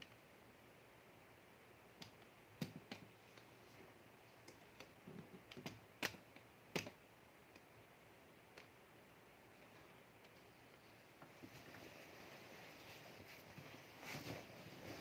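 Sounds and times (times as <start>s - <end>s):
sharp clicks and taps: 2.0s - 3.5s, 4.4s - 7.7s.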